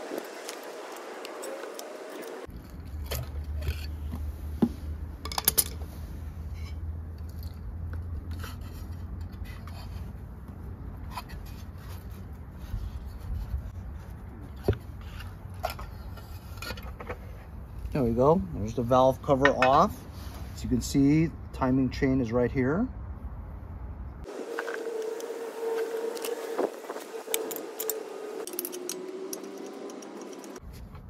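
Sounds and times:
screwdriver scraping metal: 26.2 - 30.6.

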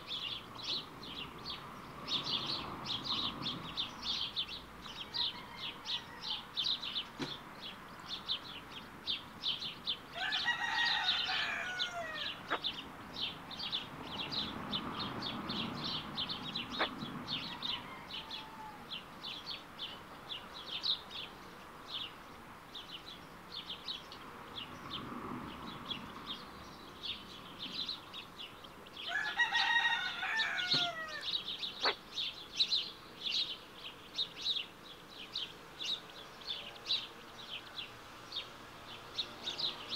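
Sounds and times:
ducklings peeping: 16.7 - 17.5, 30.4 - 32.0
bird drawn-out calls: 30.2 - 32.0.

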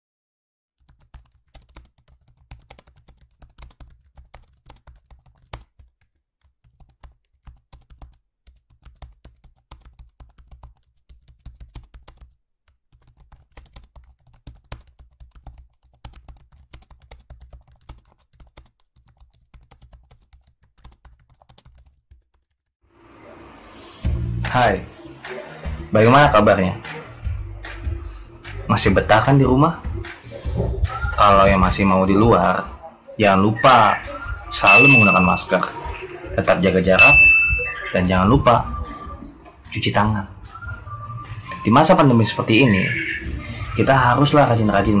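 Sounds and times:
keyboard typing: 0.8 - 22.7, 34.6 - 35.5.

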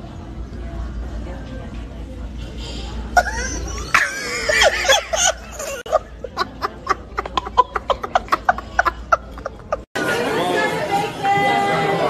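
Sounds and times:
toddler laughing: 3.2 - 9.9.

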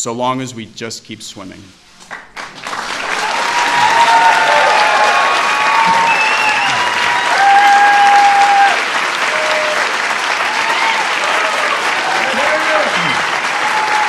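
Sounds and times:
audience applauding: 2.0 - 14.0
whoops and cheers: 3.0 - 14.0.

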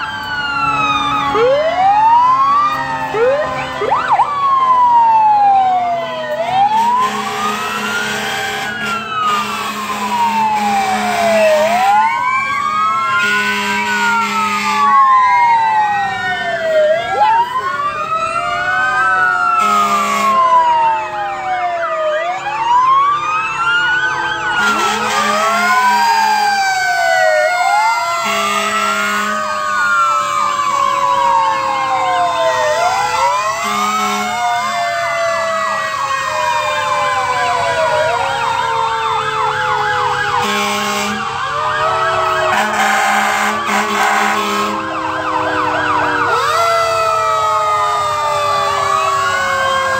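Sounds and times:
fire truck sirens wailing: 0.0 - 49.9
short horn blasts: 24.6 - 25.6, 40.4 - 41.2, 42.5 - 44.8.

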